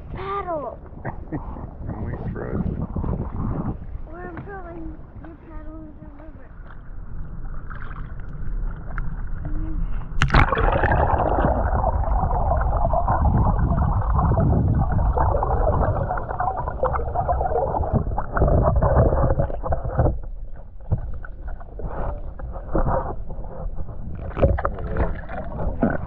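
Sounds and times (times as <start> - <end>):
underwater gurgling and rushing: 1.7 - 26.0
water splashes: 4.1 - 26.0
camera plunging into river: 10.2 - 15.3.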